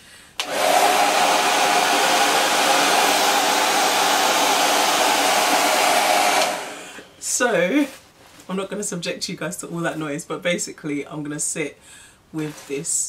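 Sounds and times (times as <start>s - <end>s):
hair dryer running: 0.4s - 7.1s.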